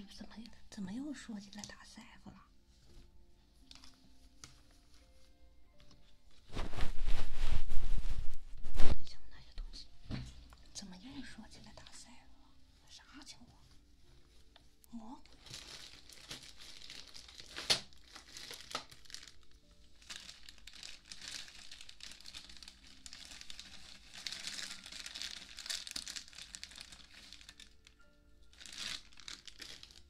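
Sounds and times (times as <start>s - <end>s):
ear pick scratching microphone: 6.5s - 9.0s.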